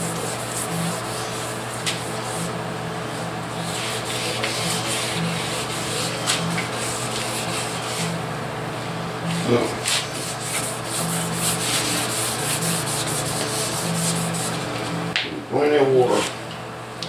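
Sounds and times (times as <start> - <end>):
sandpaper rubbing on painted metal: 0.0 - 2.5, 3.6 - 8.2, 9.4 - 14.6
steady low hum: 0.0 - 17.0.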